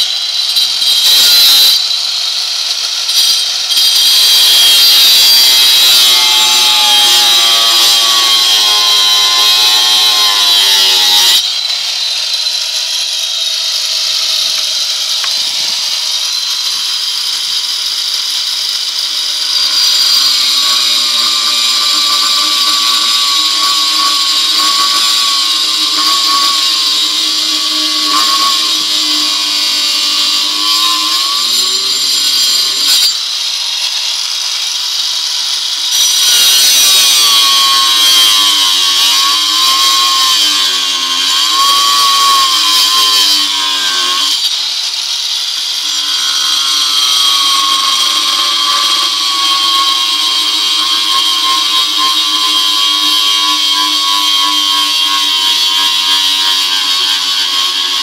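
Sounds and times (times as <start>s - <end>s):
angle grinder cutting wood: 0.0s - 58.0s.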